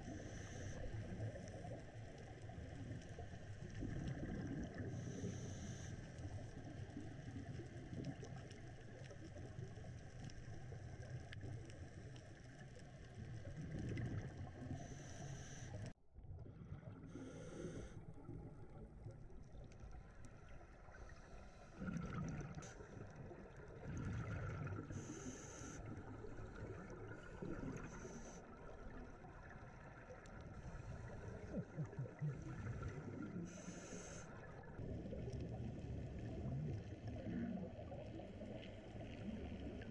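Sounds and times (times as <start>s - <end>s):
muffled underwater rumble: 0.0s - 39.9s
diver regulator breathing hiss: 4.9s - 6.2s, 14.7s - 15.9s, 17.1s - 18.0s, 24.9s - 25.9s, 27.8s - 28.5s, 33.4s - 34.4s
bubbling exhalations: 21.8s - 22.7s.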